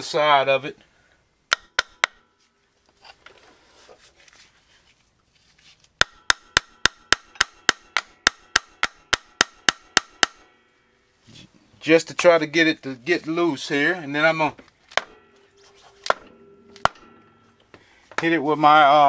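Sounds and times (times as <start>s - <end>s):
hammer tapping on metal: 1.5s - 2.2s, 6.0s - 10.5s, 15.0s - 18.3s.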